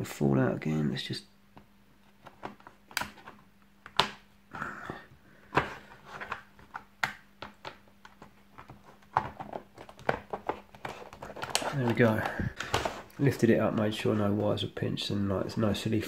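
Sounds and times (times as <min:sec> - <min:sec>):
plastic case clicks and knocks: 0:02.2 - 0:04.2, 0:05.5 - 0:13.1
plastic rubbing: 0:05.4 - 0:14.7.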